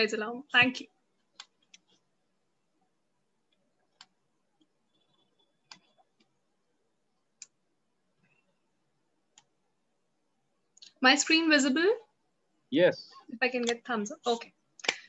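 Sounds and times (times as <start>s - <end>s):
computer mouse clicks: 0.7s - 2.0s, 3.5s - 6.4s, 7.4s - 7.6s, 9.3s - 9.6s, 13.6s - 13.9s.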